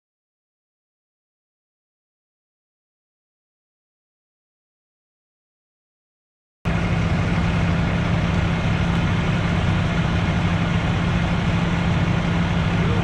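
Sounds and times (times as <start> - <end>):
diesel engine idling: 6.7 - 13.0.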